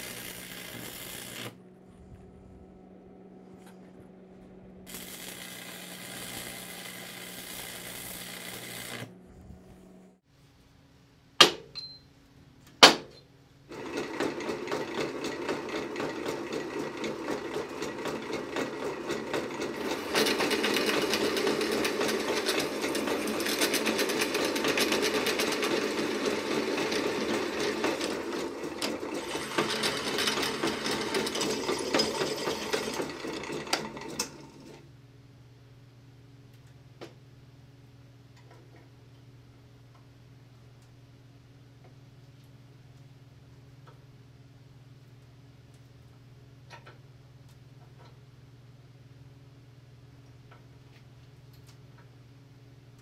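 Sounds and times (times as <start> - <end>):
drill press boring into steel: 0.0 - 1.6, 4.9 - 9.1, 13.7 - 34.8.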